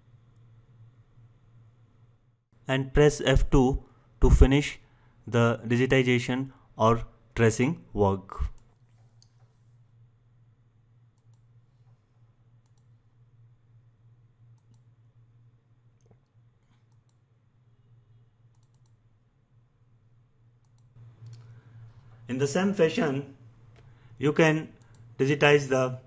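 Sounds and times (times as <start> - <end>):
steady low hum: 0.0 - 26.0
faint computer mouse clicks: 11.2 - 11.5, 12.6 - 12.9, 14.5 - 14.9, 16.0 - 17.2, 18.5 - 19.0, 20.6 - 21.6.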